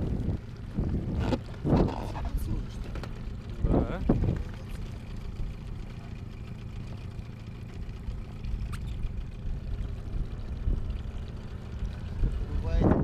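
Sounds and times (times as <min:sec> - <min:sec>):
outboard motor running: 0:00.0 - 0:13.0.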